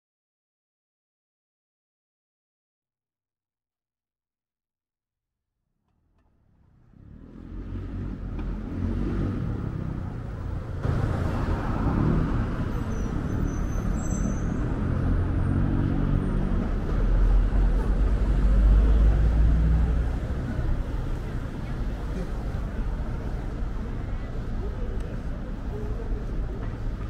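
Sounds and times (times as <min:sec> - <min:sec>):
road traffic rumble: 0:06.2 - 0:27.0.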